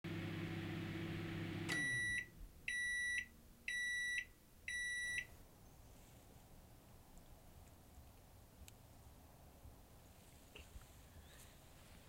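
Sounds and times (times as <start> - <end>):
microwave oven humming: 0.0 - 2.3
microwave stopping click: 0.1 - 2.2
high microwave beeps: 1.2 - 5.3.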